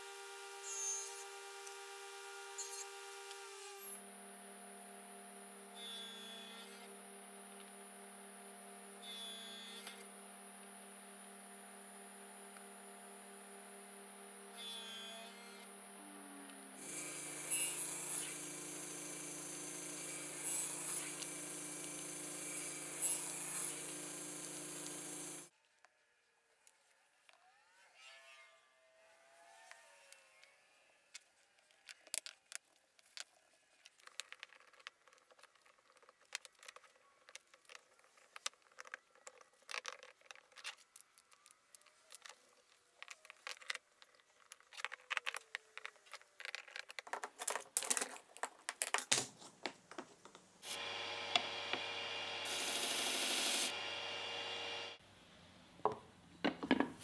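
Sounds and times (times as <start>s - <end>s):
machine hum: 15.5s - 25.5s, 50.6s - 55.9s
wooden pieces tapping and clicking: 43.0s - 50.5s.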